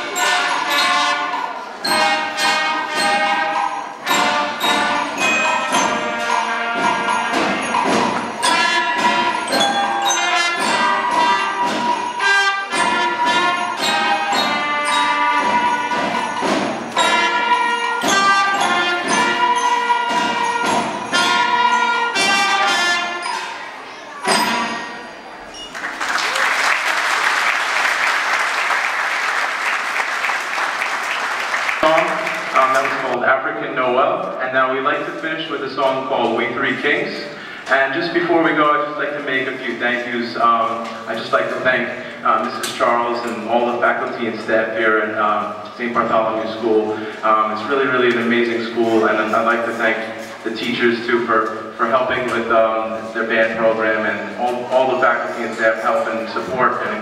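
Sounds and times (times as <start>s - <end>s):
wind band playing: 0.0s - 33.1s
audience applause: 25.7s - 33.2s.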